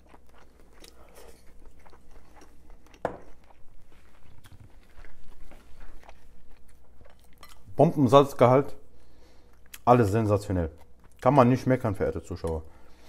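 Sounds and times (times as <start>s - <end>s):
man chewing food: 0.0s - 7.8s, 8.8s - 9.9s, 10.5s - 11.4s.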